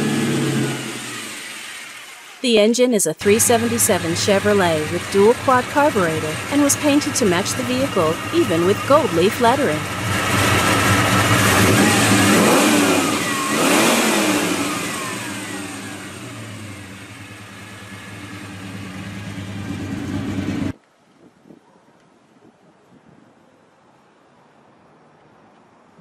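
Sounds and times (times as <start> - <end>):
car engine revving: 0.0 - 2.4, 9.8 - 20.7.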